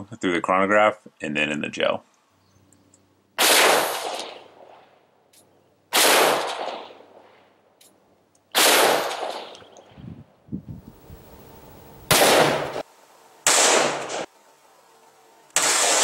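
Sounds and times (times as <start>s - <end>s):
pistol shots with echo: 3.4s - 4.5s, 5.9s - 7.0s, 8.5s - 9.6s, 12.1s - 12.8s, 13.5s - 14.3s, 15.6s - 16.0s.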